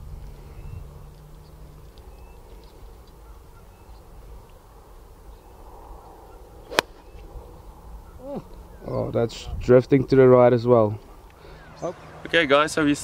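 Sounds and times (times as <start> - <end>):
wind rumble: 0.0 - 9.9
faint bird chirps: 0.2 - 4.6, 5.2 - 9.1
golf club striking ball: 6.6 - 7.2.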